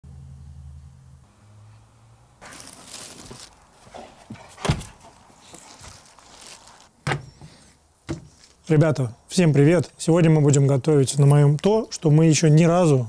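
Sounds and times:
rustling: 2.4 - 8.6
dull thumps: 7.0 - 8.4.

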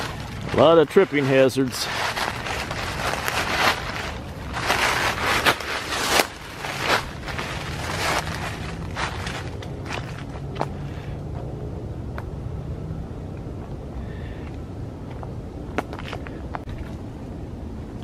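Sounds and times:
footsteps crunching through dry leaves: 0.0 - 11.1.

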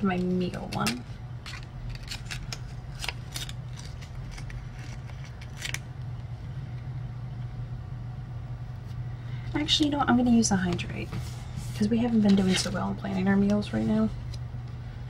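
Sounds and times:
sticker paper crinkling: 0.0 - 5.8
steady low hum: 0.0 - 15.0.

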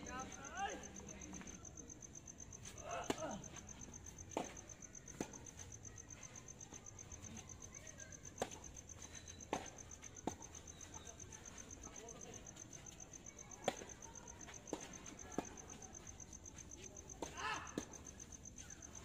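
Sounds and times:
crickets chirping: 0.0 - 19.0
tennis balls hit by rackets: 2.9 - 5.8, 8.3 - 18.7.

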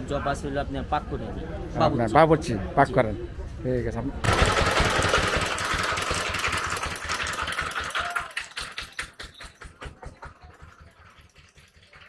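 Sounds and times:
engine knocking rapidly: 4.2 - 12.0.

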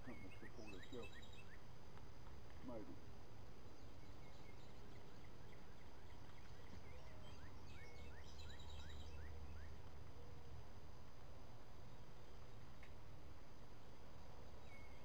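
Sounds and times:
birds calling: 0.0 - 1.7.

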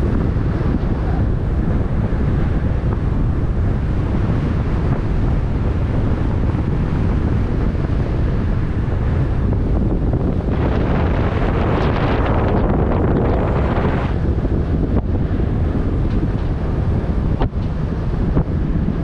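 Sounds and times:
water washing under boat: 0.0 - 19.0
wind buffeting microphone: 0.0 - 19.0.

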